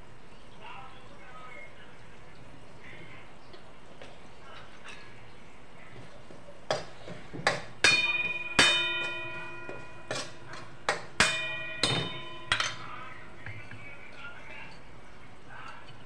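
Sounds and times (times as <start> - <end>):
metal spatula clanging in a pan: 6.7 - 14.9.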